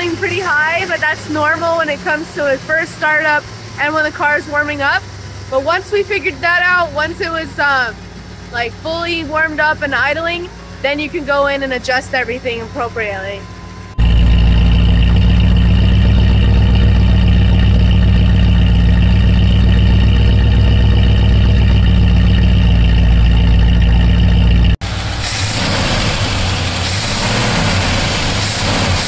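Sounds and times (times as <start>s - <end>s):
engine idling through exhaust: 0.0s - 29.0s
hissing in engine bay: 24.8s - 29.0s.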